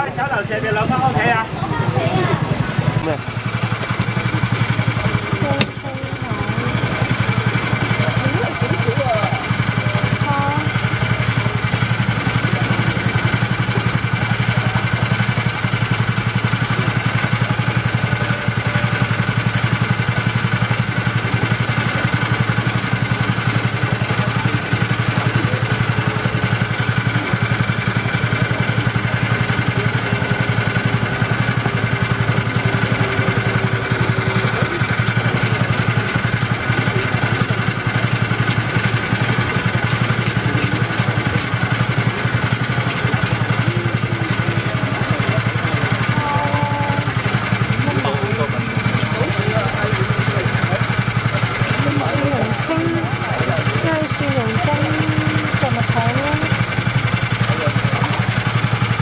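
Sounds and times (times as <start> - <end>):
small engine idling: 0.0 - 59.0
knife scraping fish scales: 35.0 - 45.3.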